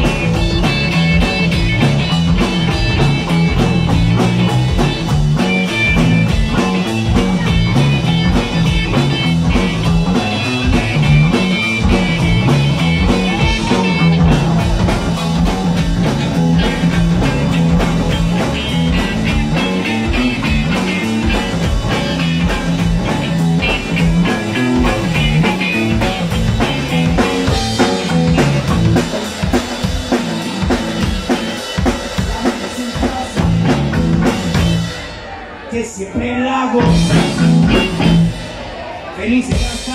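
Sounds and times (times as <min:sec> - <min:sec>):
higher melodic line: 0:00.0 - 0:29.4
electric bass guitar: 0:00.0 - 0:35.1, 0:36.2 - 0:39.9
drum kit with cymbals and snare: 0:00.0 - 0:39.9.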